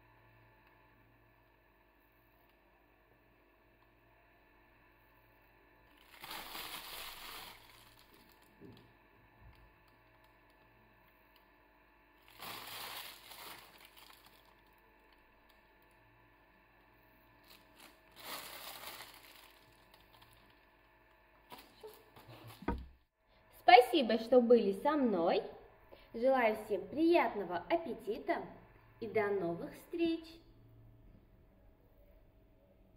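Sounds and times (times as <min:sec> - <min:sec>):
plastic bag crinkling: 0:05.9 - 0:08.9, 0:12.2 - 0:15.6, 0:17.4 - 0:20.7, 0:21.5 - 0:22.8.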